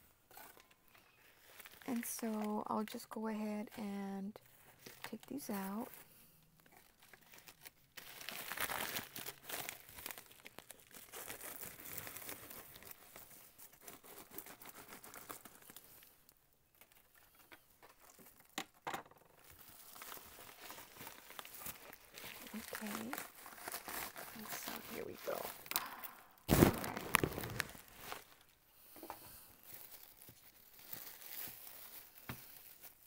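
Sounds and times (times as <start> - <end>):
plastic packaging crinkling: 0.4 - 2.7, 4.4 - 33.0.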